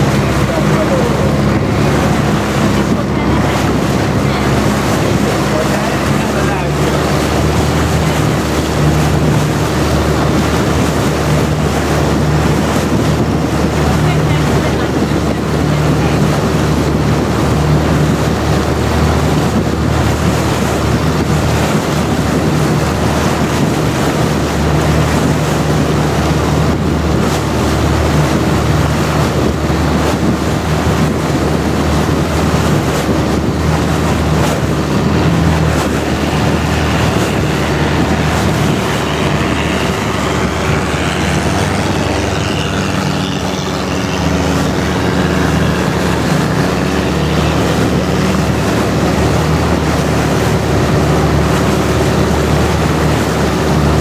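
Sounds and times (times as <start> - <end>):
boat engine droning: 0.0 - 54.0
wind and water rushing: 0.0 - 54.0.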